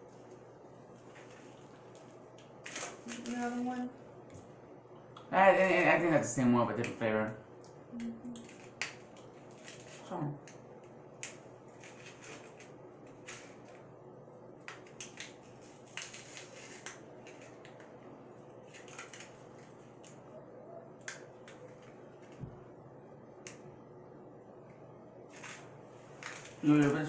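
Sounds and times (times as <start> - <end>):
candy wrapper crinkling: 8.4 - 10.1, 14.7 - 17.9, 18.5 - 20.2, 25.3 - 27.0.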